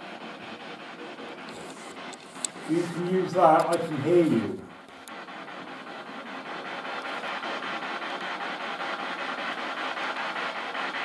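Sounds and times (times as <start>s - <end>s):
radio static pulsing: 1.5s - 4.8s.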